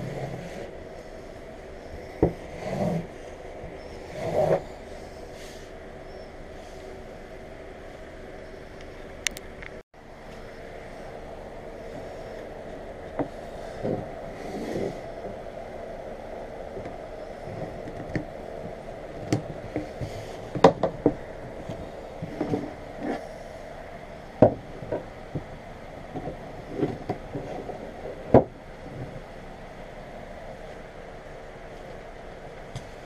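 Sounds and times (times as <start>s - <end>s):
steady background hum: 0.0s - 33.0s.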